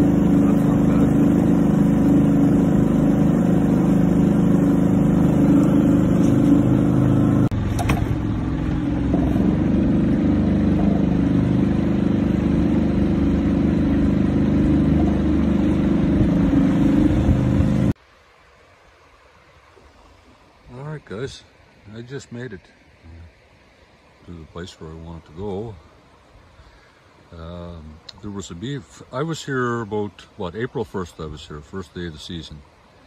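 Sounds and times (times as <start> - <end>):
outboard motor running: 0.0 - 18.0.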